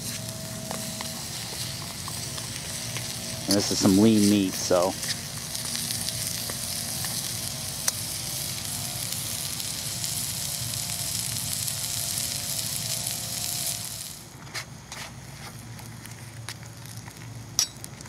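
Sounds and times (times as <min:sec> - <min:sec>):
meat sizzling in a pan: 0:00.0 - 0:14.2.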